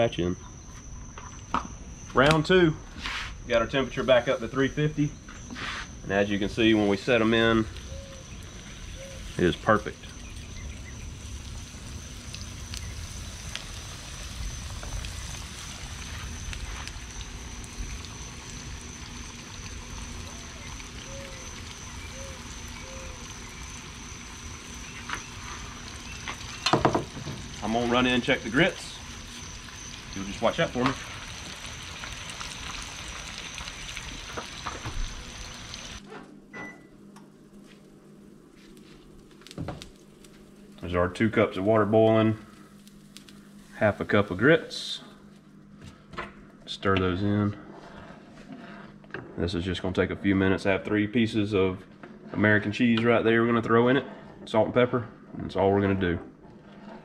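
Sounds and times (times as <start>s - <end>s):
low hum: 0.0s - 52.8s
oil sizzling: 3.2s - 36.1s, 37.3s - 45.4s
oil popping and crackling: 6.5s - 36.1s, 38.7s - 44.4s.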